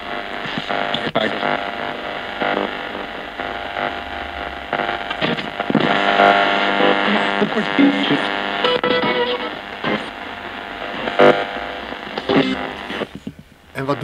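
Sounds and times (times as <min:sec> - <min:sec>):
radio static: 0:00.0 - 0:14.0
radio sweeping through stations: 0:00.0 - 0:14.0
broken broadcast fragments: 0:00.2 - 0:14.0.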